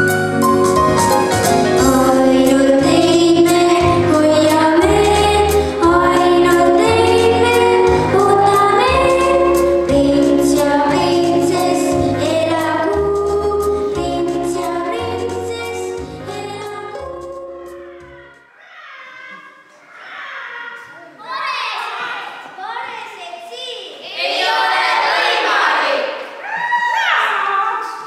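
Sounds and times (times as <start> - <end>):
instrumental accompaniment with bass: 0.0 - 18.4
girl singing into a microphone: 1.8 - 17.9.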